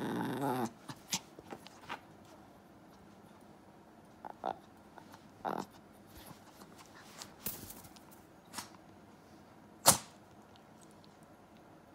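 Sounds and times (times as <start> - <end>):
soft clicks and rustles: 6.0 - 9.0.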